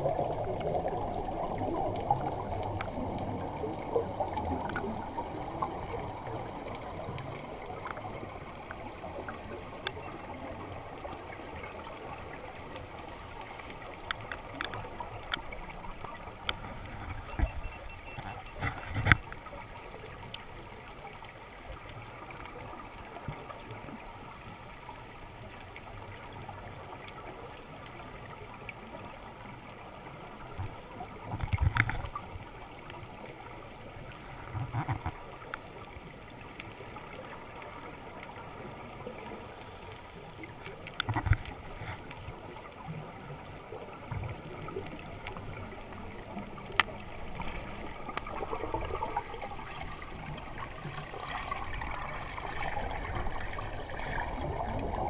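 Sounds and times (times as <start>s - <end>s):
air bubbles gurgling: 0.0s - 19.2s, 40.9s - 55.0s
underwater watery hiss: 35.2s - 36.1s, 38.6s - 40.7s.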